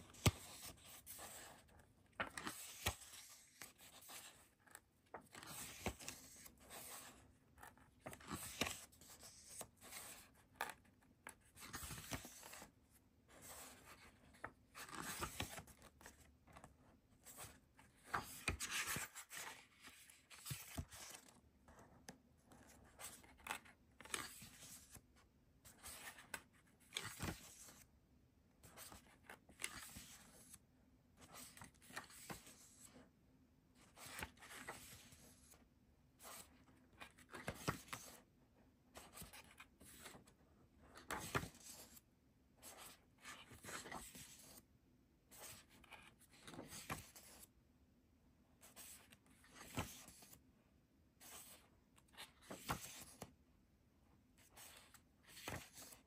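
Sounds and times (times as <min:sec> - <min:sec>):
paper and card rustling: 0:00.1 - 0:21.4, 0:40.9 - 0:42.0, 0:54.5 - 0:56.0.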